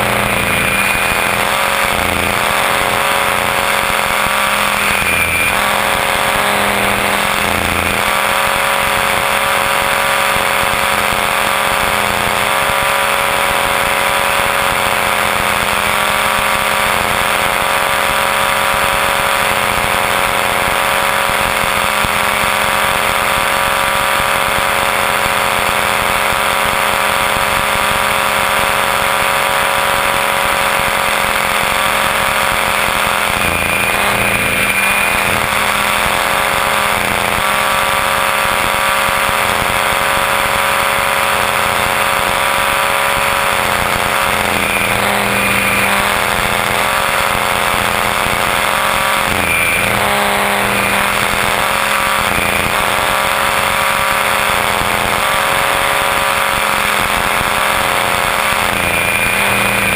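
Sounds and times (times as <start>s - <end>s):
rc helicopter motor whine: 0.0s - 59.9s.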